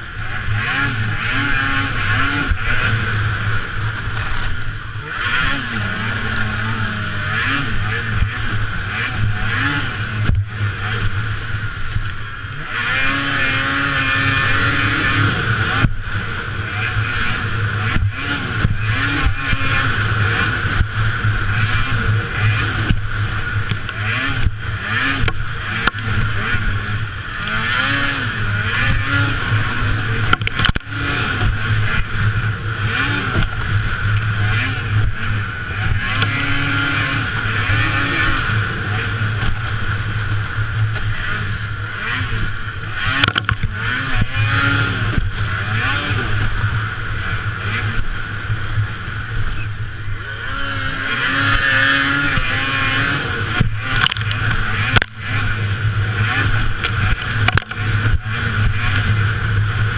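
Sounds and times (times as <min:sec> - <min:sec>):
snowmobile engine revving: 0:00.0 - 0:59.9.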